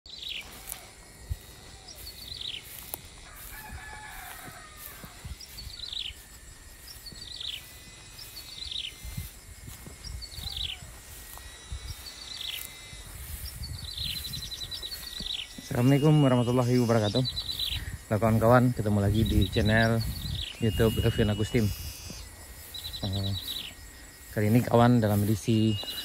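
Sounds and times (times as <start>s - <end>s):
thin high tone: 0.1s - 17.7s, 18.4s - 26.0s
small bird calling: 0.1s - 26.0s
rooster crowing: 3.1s - 6.5s.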